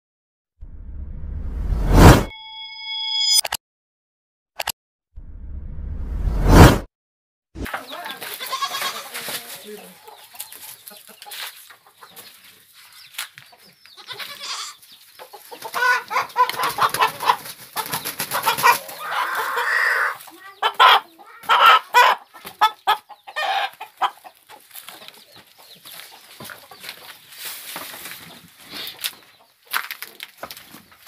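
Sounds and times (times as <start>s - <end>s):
chicken squawking and cackling: 14.0s - 25.1s
wings flapping: 16.4s - 19.2s.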